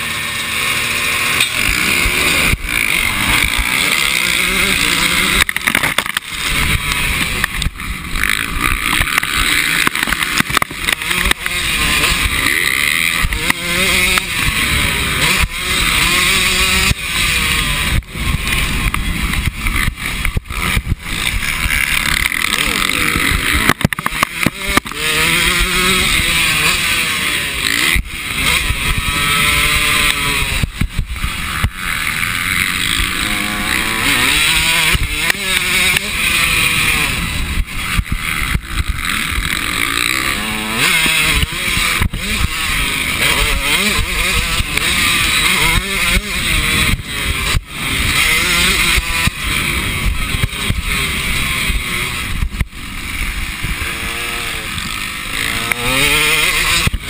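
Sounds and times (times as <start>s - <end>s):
motocross bike engine revving: 0.0s - 57.0s.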